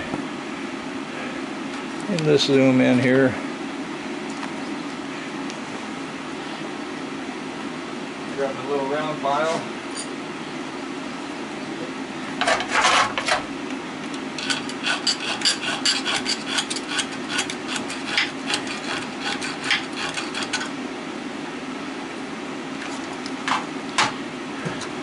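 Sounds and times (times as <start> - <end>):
file rasping on metal windings: 12.4 - 13.4, 14.4 - 20.8.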